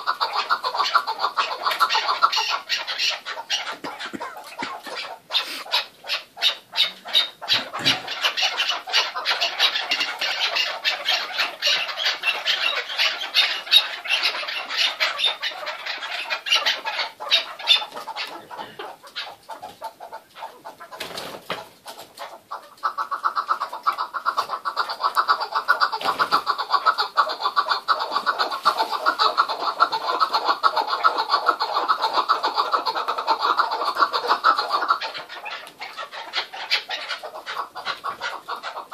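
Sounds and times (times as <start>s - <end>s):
partridges clucking: 0.0s - 19.6s.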